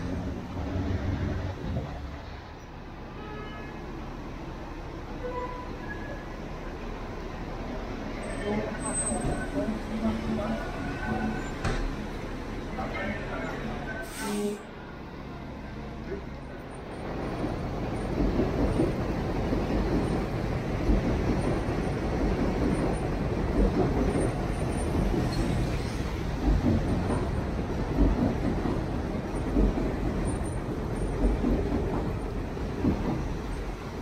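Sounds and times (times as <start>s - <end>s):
city traffic rumble on wet street: 0.0s - 34.0s.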